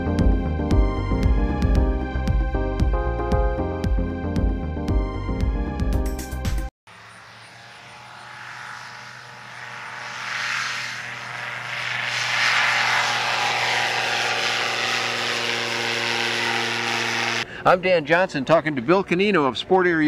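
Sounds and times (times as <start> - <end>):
airplane engine drone: 6.9 - 17.6.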